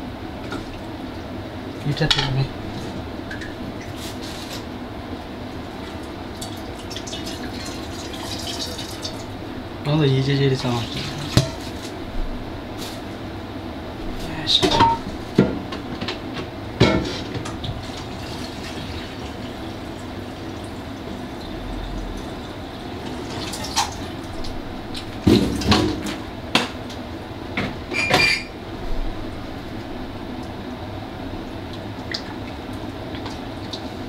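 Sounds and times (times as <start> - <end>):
steady low hum: 0.0 - 34.0
cooking pot and utensils clinking: 14.7 - 15.1.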